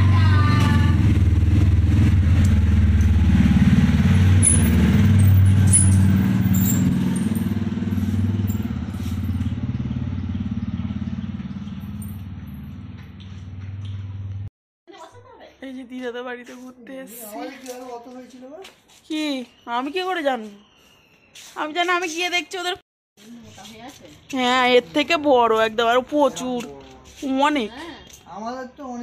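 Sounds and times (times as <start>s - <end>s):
motorcycle engine running: 0.0s - 14.5s.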